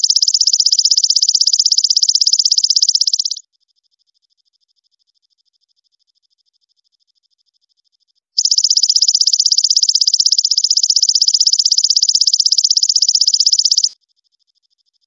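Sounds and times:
faint pulsing trill: 0.0 - 3.4, 8.4 - 13.9.

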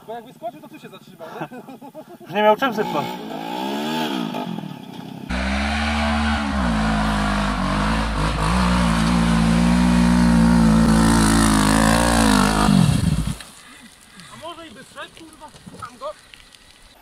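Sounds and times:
quad engine revving hard: 2.8 - 4.6, 5.3 - 13.4.

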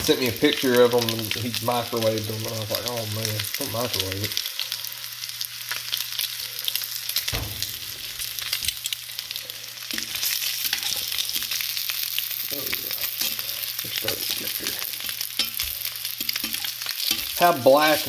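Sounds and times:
sausages sizzling in butter: 0.0 - 18.0
metal tongs knocking and scraping: 15.4 - 17.4.

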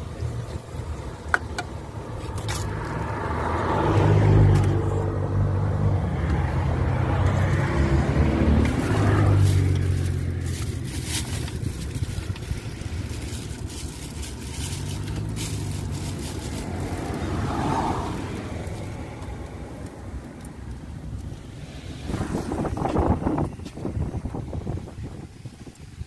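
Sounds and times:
road traffic passing: 0.0 - 26.0
low engine drone: 4.8 - 23.7.

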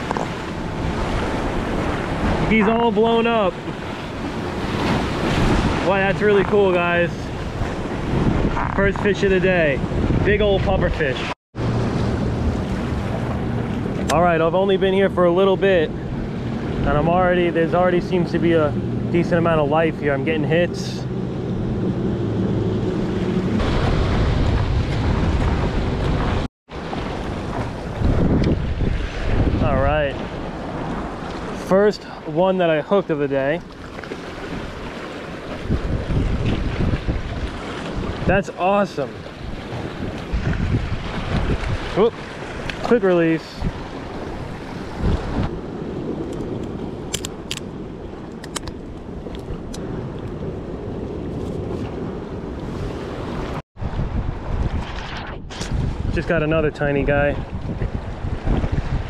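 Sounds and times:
waves washing against rocks: 0.0 - 10.8, 23.5 - 48.2
wind buffeting microphone: 0.0 - 31.6, 33.7 - 59.0
choppy water: 0.0 - 59.0.

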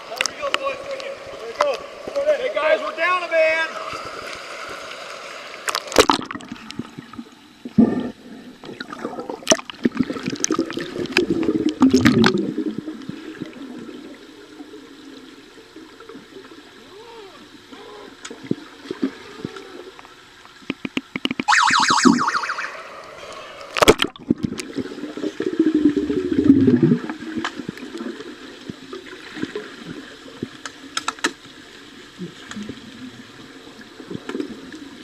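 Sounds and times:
water sloshing and gurgling: 0.0 - 35.0
sharp underwater clicks and knocks: 19.5 - 21.5, 23.8 - 24.7, 30.5 - 31.5.

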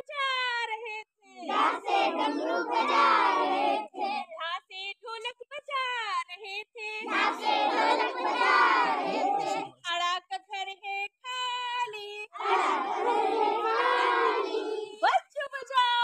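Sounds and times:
children singing in chorus: 1.5 - 4.2, 7.0 - 9.8, 12.4 - 15.0.

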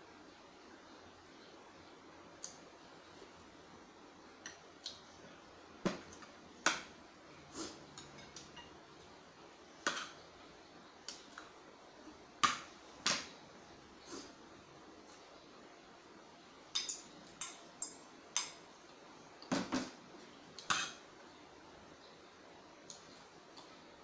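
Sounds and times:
cutlery clinking against dishes: 7.9 - 8.8, 9.8 - 10.2, 16.7 - 18.6, 20.6 - 21.0.

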